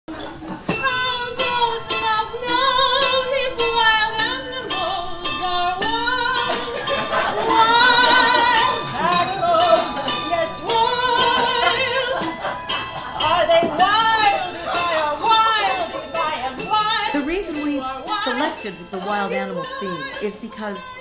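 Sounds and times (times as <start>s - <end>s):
piano accompaniment: 0.1s - 21.0s
women singing with vibrato: 0.6s - 21.0s.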